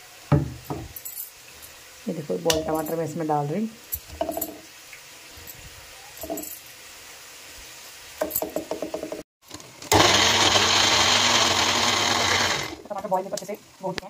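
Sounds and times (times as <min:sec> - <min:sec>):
mixer grinder running: 0:09.8 - 0:12.8.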